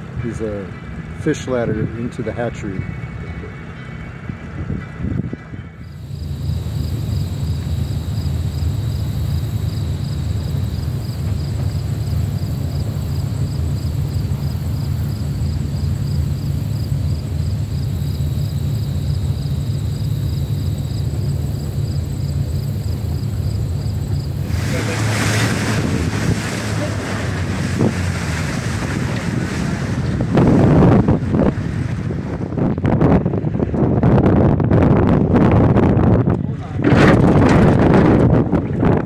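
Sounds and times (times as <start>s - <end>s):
boat engine humming: 0.0s - 39.0s
wind on microphone: 4.2s - 8.0s, 24.3s - 39.0s
water splashing: 24.1s - 32.6s.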